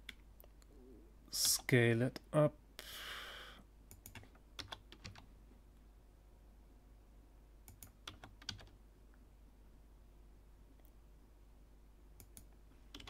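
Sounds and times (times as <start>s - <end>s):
faint keyboard keystrokes: 12.2s - 13.0s.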